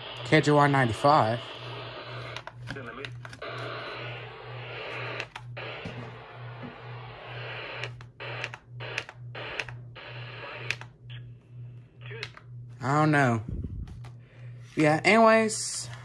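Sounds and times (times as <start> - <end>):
music from small radio speaker: 0.0 - 11.2
radio reception hiss: 0.0 - 11.3.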